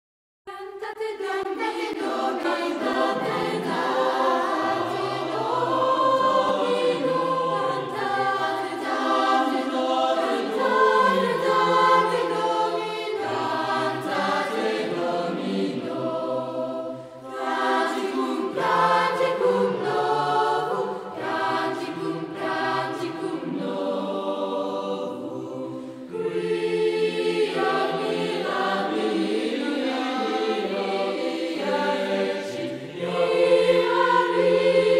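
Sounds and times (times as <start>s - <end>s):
choir singing in harmony: 0.5s - 34.9s.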